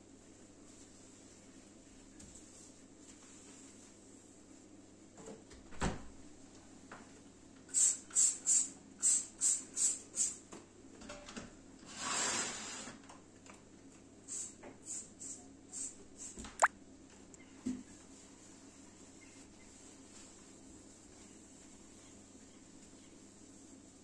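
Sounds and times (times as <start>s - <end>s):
spray bottle spraying: 7.7s - 10.4s.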